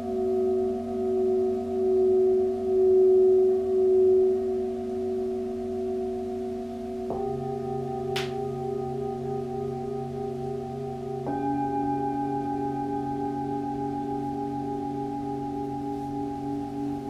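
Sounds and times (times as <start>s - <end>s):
singing bowls ringing: 0.0s - 17.0s
singing bowl struck softly: 7.1s - 17.0s.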